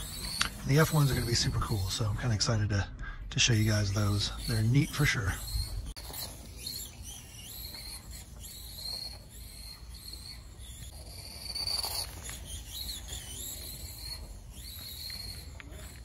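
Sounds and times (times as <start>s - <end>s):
toy car electric motors whining: 0.0s - 16.0s.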